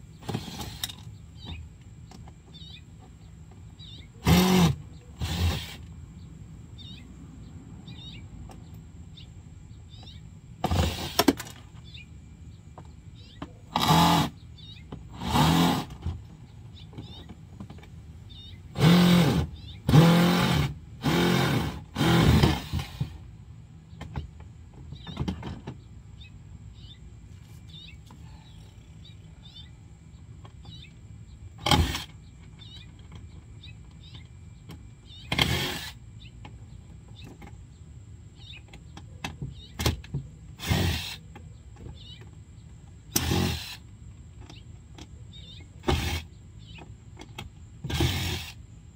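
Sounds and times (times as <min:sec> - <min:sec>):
cordless drill short bursts: 0:04.2 - 0:05.8, 0:10.7 - 0:11.4, 0:13.7 - 0:14.4, 0:15.2 - 0:16.0, 0:18.8 - 0:23.1, 0:35.4 - 0:36.0, 0:40.6 - 0:41.2, 0:43.1 - 0:43.8, 0:45.8 - 0:46.3, 0:47.9 - 0:48.6.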